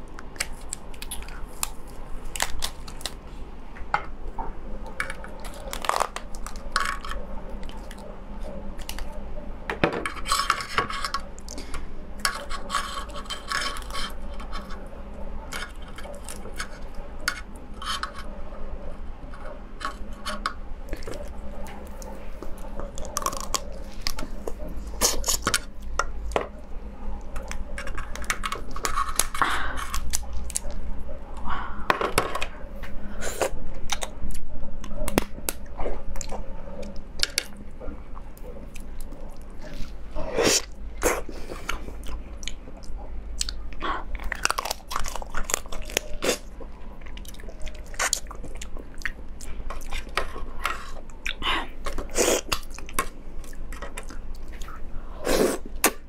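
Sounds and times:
crab shell cracking and snapping: 0:00.1 - 0:03.2, 0:05.0 - 0:08.0, 0:27.4 - 0:30.8, 0:44.2 - 0:46.5.

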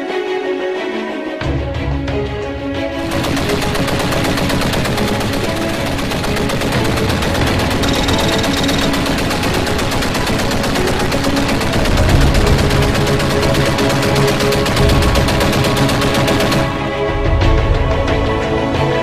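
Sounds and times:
automatic gunfire: 0:03.0 - 0:17.0.

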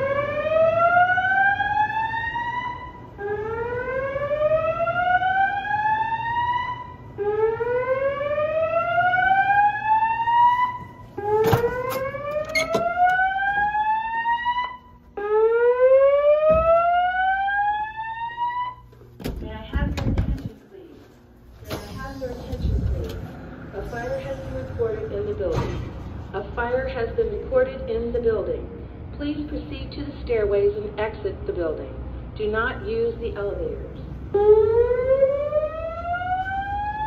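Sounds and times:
fire alarm whoop tone: 0:00.0 - 0:18.9, 0:34.4 - 0:37.0.

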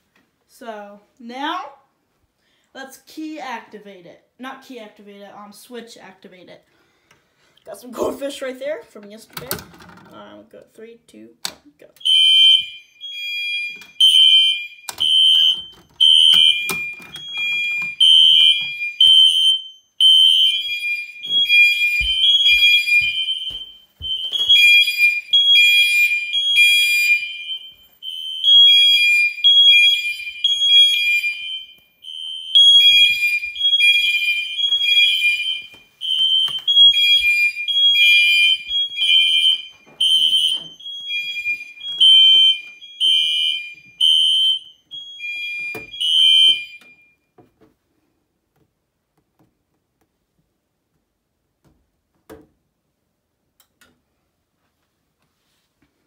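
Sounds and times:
fire alarm two-tone electronic horn: 0:12.0 - 0:47.3.

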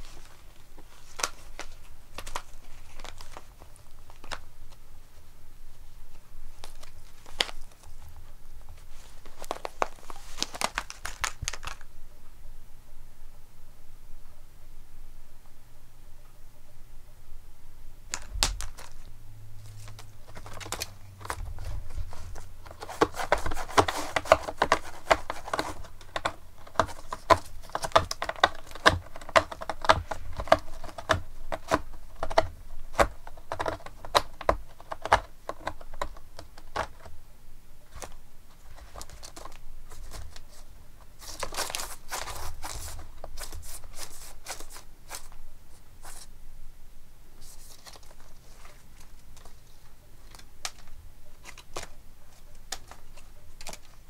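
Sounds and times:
cat claws scratching cardboard: 0:18.1 - 0:37.1, 0:37.9 - 0:45.4.

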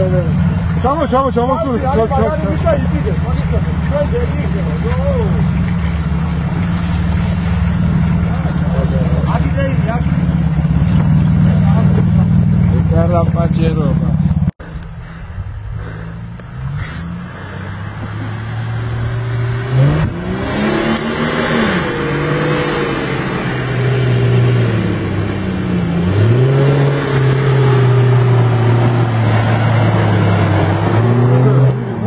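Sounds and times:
off-road vehicle engine revving: 0:00.0 - 0:14.9, 0:15.5 - 0:32.0.

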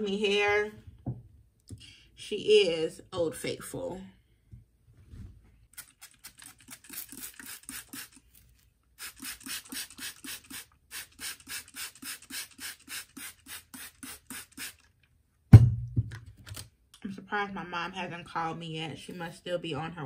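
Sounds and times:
spray bottle hissing squirts: 0:05.7 - 0:08.3, 0:09.0 - 0:14.9.

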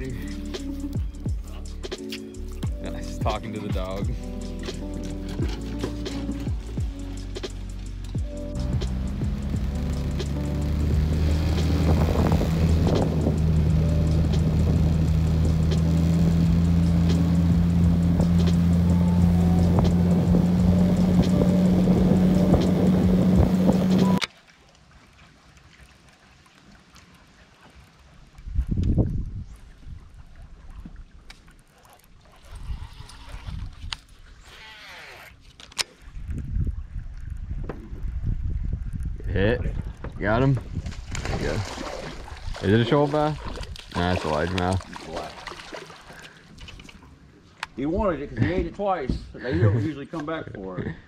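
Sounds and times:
outboard motor droning: 0:00.0 - 0:24.3, 0:41.7 - 0:47.5
water sloshing around a boat: 0:00.0 - 0:38.9, 0:39.6 - 0:50.8
wind buffeting the microphone: 0:11.7 - 0:13.6, 0:28.4 - 0:31.0, 0:32.4 - 0:34.1, 0:36.1 - 0:44.0
faint clicks from boat hull: 0:30.8 - 0:34.2, 0:35.4 - 0:36.5, 0:46.2 - 0:47.8
short falling squeak: 0:34.4 - 0:35.4.

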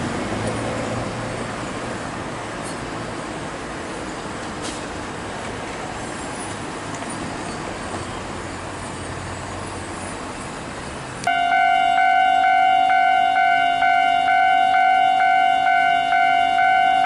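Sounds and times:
road traffic noise: 0:00.0 - 0:17.0
level crossing warning bell: 0:11.3 - 0:17.0.

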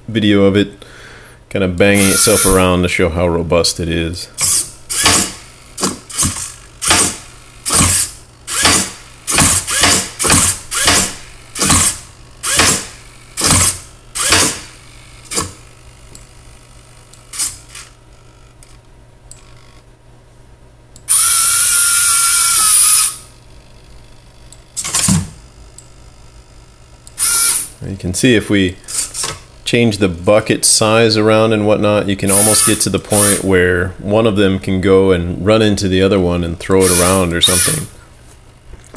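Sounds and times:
small electric motors whirring: 0:02.0 - 0:02.6, 0:04.4 - 0:19.8, 0:21.1 - 0:23.3, 0:27.1 - 0:27.7, 0:32.3 - 0:33.4, 0:36.8 - 0:37.9.

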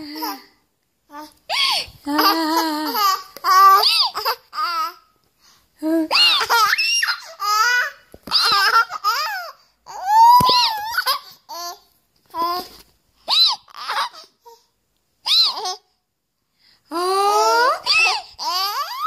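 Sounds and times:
baby laughing and squealing: 0:01.5 - 0:05.0, 0:06.1 - 0:11.8, 0:13.2 - 0:14.4, 0:15.2 - 0:15.8, 0:17.4 - 0:19.0.

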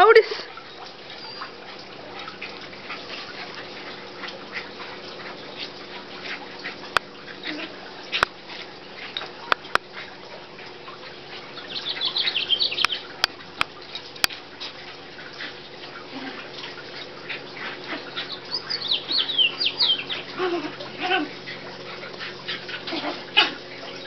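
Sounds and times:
puppies whimpering and yipping: 0:00.8 - 0:06.7, 0:17.4 - 0:24.0.

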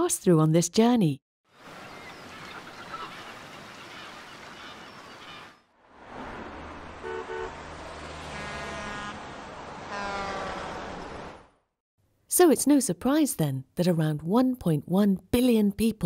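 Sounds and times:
sea noise: 0:01.5 - 0:11.6
traffic engines running: 0:05.9 - 0:11.7
car horn honks: 0:07.0 - 0:09.3, 0:09.9 - 0:10.6.

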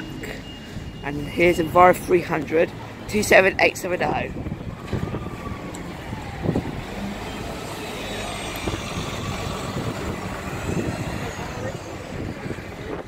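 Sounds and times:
bus driving past: 0:04.3 - 0:13.0.

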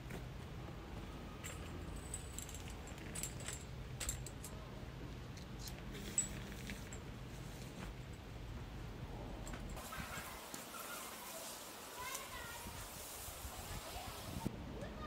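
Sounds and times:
small metallic clinks: 0:01.4 - 0:04.6.

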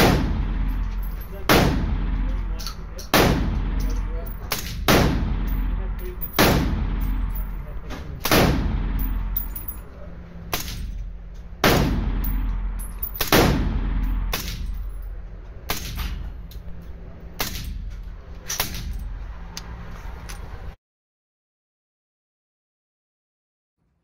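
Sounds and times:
gunshots with ringing echo: 0:00.0 - 0:10.9, 0:11.6 - 0:16.2.

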